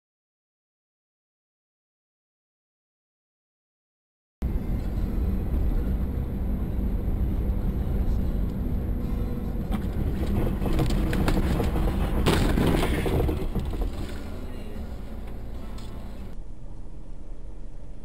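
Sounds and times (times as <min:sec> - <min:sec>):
car engine and road rumble: 0:04.4 - 0:18.0
rattles and clicks: 0:09.6 - 0:16.4.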